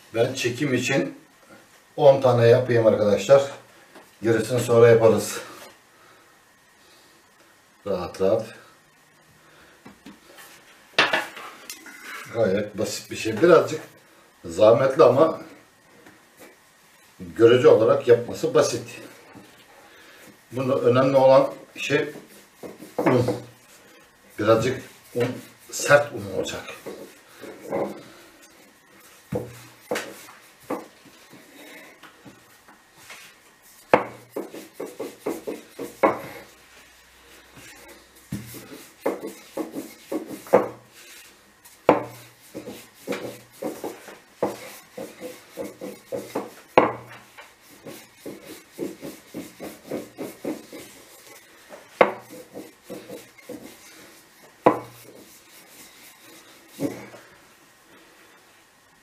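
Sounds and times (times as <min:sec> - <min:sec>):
rolling pin rolling dough: 0:20.3 - 0:57.3
rolling pin knocking on counter: 0:22.2 - 0:23.5, 0:33.9 - 0:36.4, 0:38.3 - 0:40.8, 0:41.8 - 0:47.2, 0:52.0 - 0:53.8, 0:54.6 - 0:55.3.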